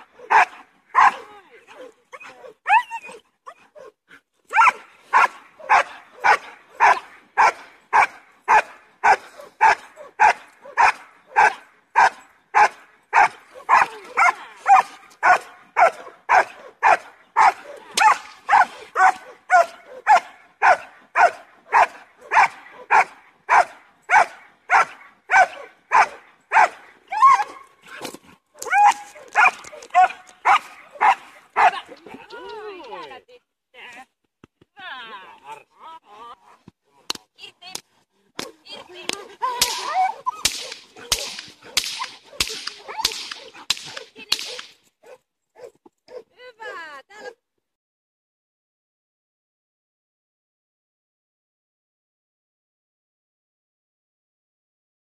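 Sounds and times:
dog barking: 0:00.2 - 0:01.9, 0:04.5 - 0:26.8, 0:28.6 - 0:31.8, 0:39.8 - 0:46.3
whip cracking: 0:17.9 - 0:18.7, 0:27.4 - 0:29.9, 0:38.4 - 0:44.9.

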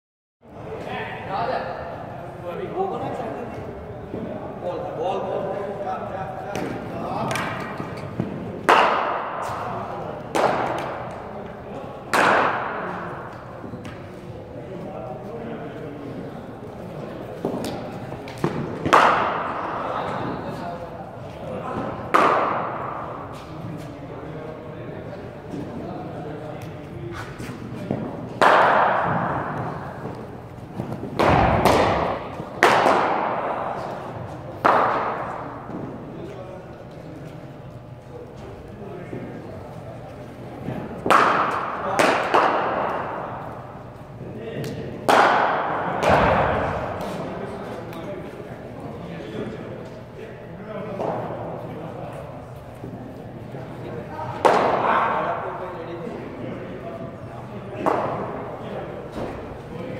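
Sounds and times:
ball hitting nets: 0:28.4 - 0:34.0.

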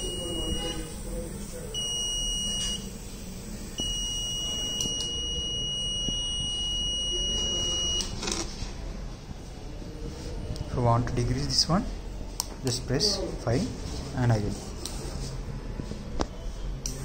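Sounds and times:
electronic buzzer high tone: 0:00.0 - 0:03.0, 0:03.7 - 0:08.2.

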